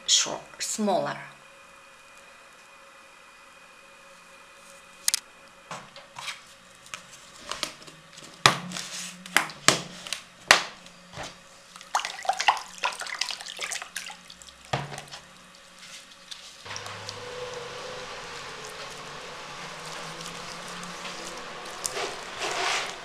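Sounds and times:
water splashing into plastic basin: 0:11.8 - 0:15.2.

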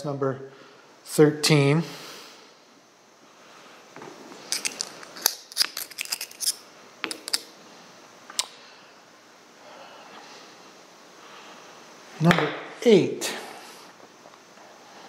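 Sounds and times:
metal parts clicking and clinking: 0:04.5 - 0:07.4.

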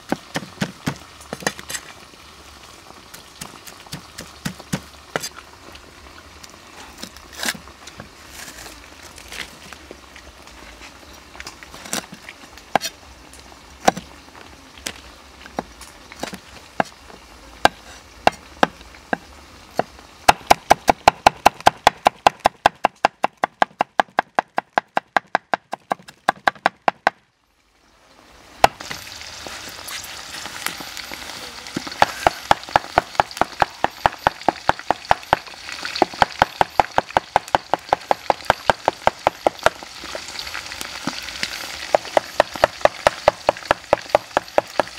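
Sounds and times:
oil sizzling in a wok: 0:00.0 - 0:22.4, 0:27.5 - 0:44.9
cleaver chopping on wooden block: 0:19.8 - 0:27.2.

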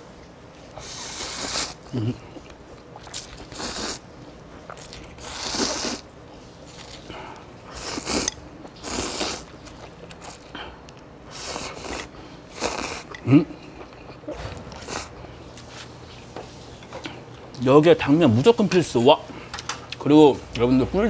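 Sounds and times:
person slurping noodles: 0:00.8 - 0:02.2, 0:03.0 - 0:04.0, 0:04.7 - 0:06.0, 0:07.7 - 0:09.5, 0:11.3 - 0:13.1.

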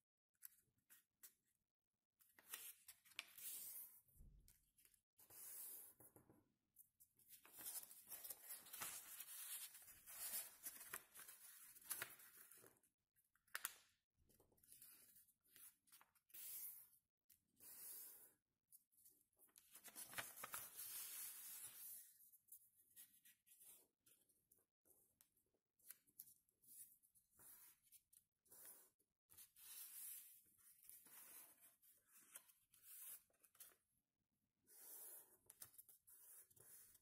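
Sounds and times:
paper rustling and crinkling: 0:07.4 - 0:12.6, 0:19.6 - 0:21.6.

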